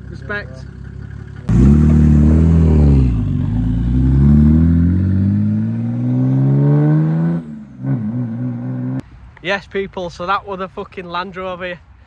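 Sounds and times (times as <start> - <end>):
diesel engine accelerating: 0.0 - 9.0.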